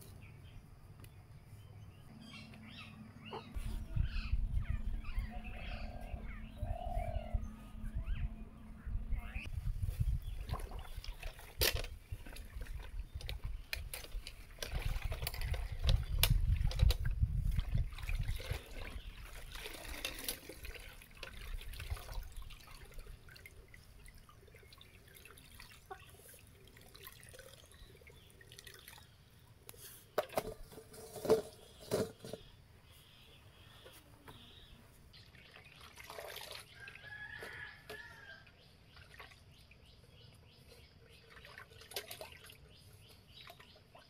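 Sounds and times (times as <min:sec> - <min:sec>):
water sloshing in metal bucket: 0:10.0 - 0:29.1, 0:35.3 - 0:38.1, 0:41.2 - 0:44.0
water dripping into bucket: 0:10.4 - 0:30.4, 0:35.3 - 0:37.1, 0:41.3 - 0:42.7.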